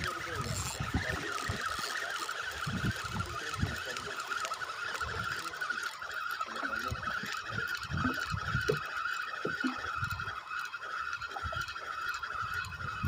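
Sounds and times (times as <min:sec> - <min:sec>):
wind buffeting microphone: 0:00.0 - 0:01.8, 0:02.5 - 0:04.1, 0:05.0 - 0:05.4, 0:06.8 - 0:08.8, 0:12.5 - 0:13.0
sea water slapping boat hull: 0:00.0 - 0:13.0.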